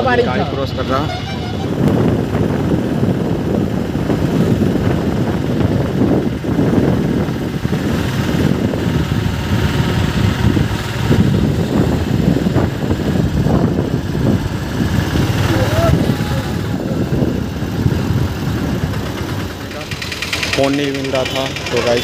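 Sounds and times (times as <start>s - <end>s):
car engine and road noise: 0.0s - 22.0s.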